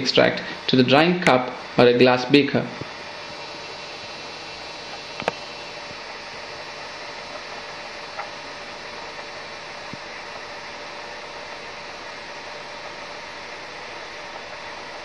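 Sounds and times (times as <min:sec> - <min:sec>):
background hum and hiss: 0:00.0 - 0:15.0.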